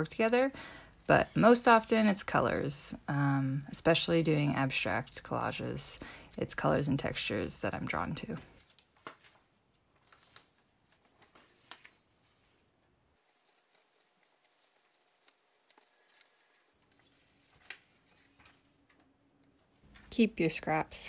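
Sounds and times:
paper pages rustling: 8.6s - 19.2s.

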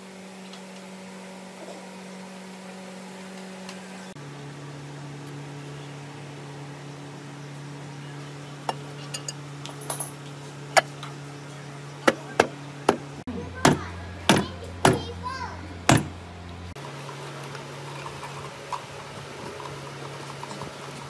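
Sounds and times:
steady low hum: 3.9s - 19.7s
mallet knocks on metal: 13.6s - 15.0s, 15.9s - 16.2s.

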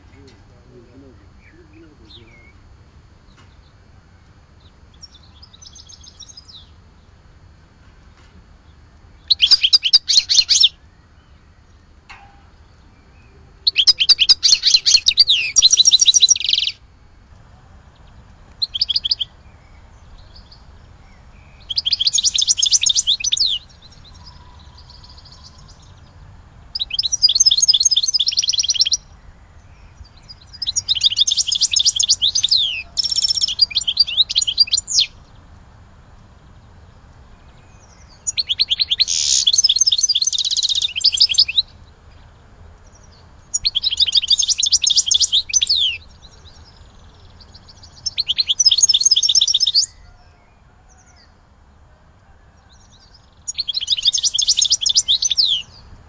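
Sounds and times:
goldfinch twittering song: 8.7s - 16.8s, 18.0s - 35.4s, 37.5s - 50.2s, 52.9s - 55.8s.

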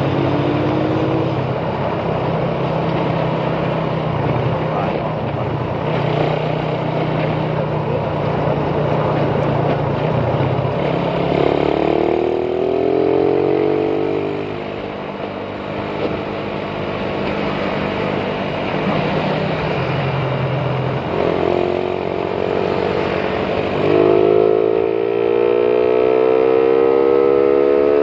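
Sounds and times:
motorcycle engine running: 0.0s - 28.0s
higher engine note: 18.8s - 28.0s.

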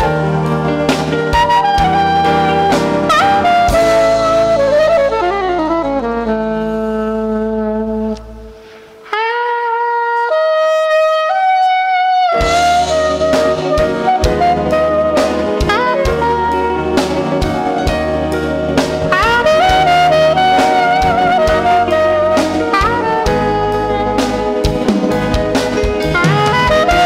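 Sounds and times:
drums and cymbals: 0.0s - 6.6s, 12.4s - 27.0s
jazz band playing: 0.0s - 27.0s
solo saxophone phrase: 0.0s - 27.0s.

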